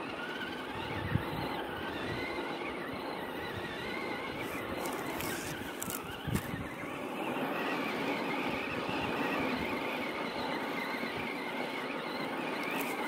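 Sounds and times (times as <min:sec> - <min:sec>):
electric motor whining: 0:00.0 - 0:13.0
tyre and ground noise: 0:04.2 - 0:07.1, 0:12.5 - 0:13.0.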